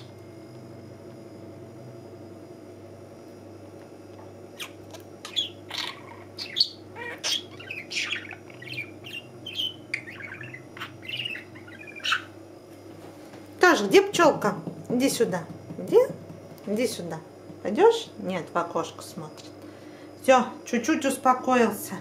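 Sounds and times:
budgerigar chirping and warbling: 4.6s - 12.4s.

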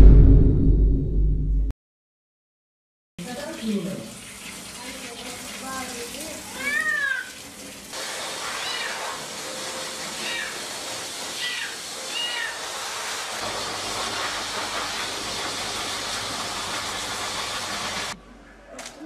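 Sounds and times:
low hum: 0.0s - 1.7s
water spray hissing: 3.2s - 18.2s
cat meowing: 6.6s - 7.4s, 8.6s - 9.2s, 10.2s - 10.7s, 11.4s - 12.7s.

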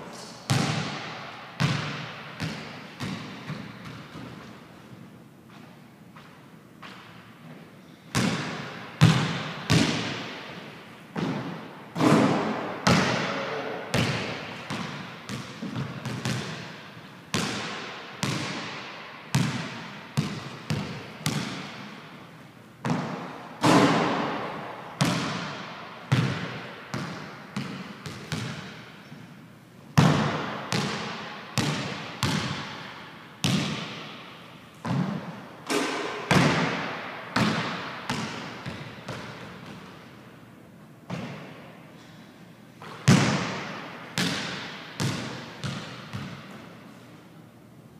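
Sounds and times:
basketball bouncing on wooden floor: 0.5s - 4.5s, 8.2s - 10.4s, 11.2s - 13.3s, 13.9s - 21.9s, 22.8s - 29.0s, 30.0s - 34.2s, 34.8s - 40.1s, 41.1s - 41.6s, 42.8s - 46.6s.

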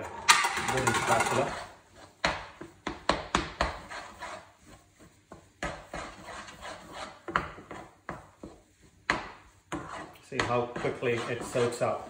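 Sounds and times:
spatula scraping pan: 0.0s - 12.0s
wooden spatula knocking on pan: 2.2s - 3.9s, 7.2s - 10.9s.

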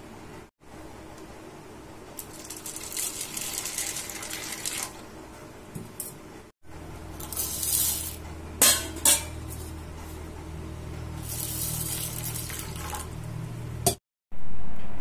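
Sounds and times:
steady low hum: 5.0s - 15.0s.

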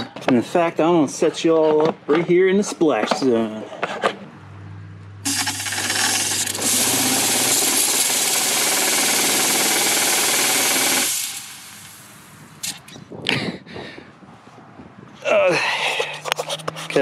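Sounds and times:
loud hissing spray: 10.0s - 12.3s.

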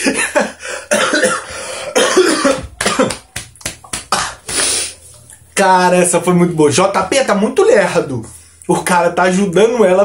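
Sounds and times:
man laughing hard: 0.0s - 0.8s.

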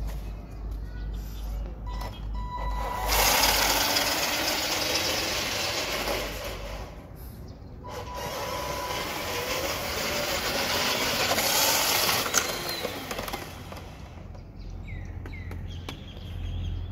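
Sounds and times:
toy truck motor and gear whine: 2.4s - 7.1s, 7.8s - 14.3s.

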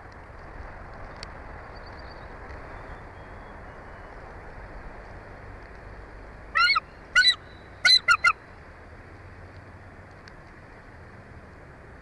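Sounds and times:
steady background hiss: 0.0s - 12.0s
eagle chirping calls: 6.6s - 8.4s.

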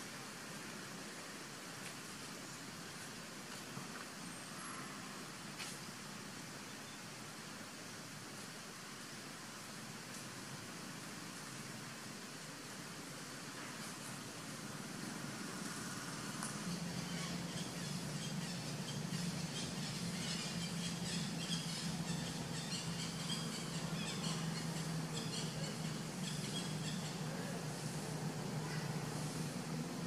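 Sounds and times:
steady low hum: 7.2s - 30.0s.

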